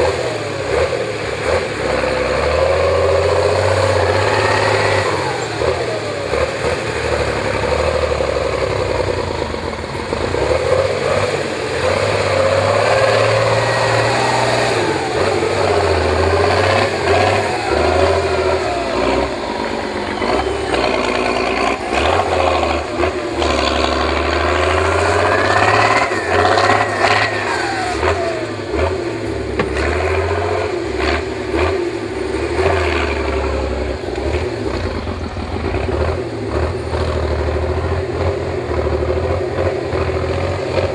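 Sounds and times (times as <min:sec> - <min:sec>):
truck diesel engine revving: 0:00.0 - 0:40.9
knocks and clunks: 0:29.5 - 0:30.2.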